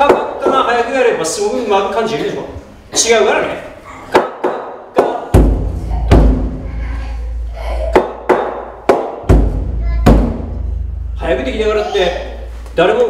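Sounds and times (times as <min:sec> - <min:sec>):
taiko drum strokes: 0:05.3 - 0:08.2, 0:09.2 - 0:12.6.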